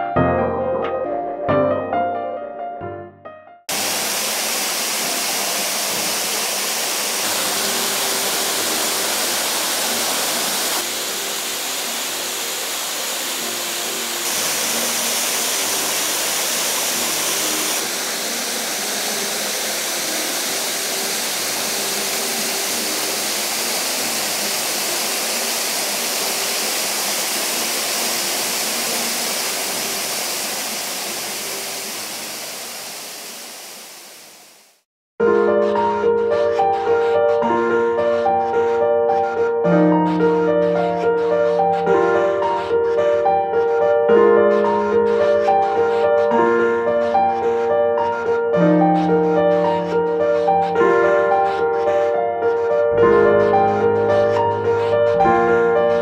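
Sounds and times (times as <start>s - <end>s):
waterfall rushing onto rock: 3.7s - 34.8s.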